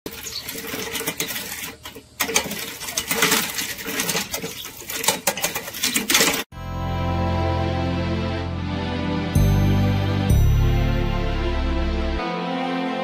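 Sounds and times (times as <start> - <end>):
roller chain rattling over sprockets: 0.1 - 6.5.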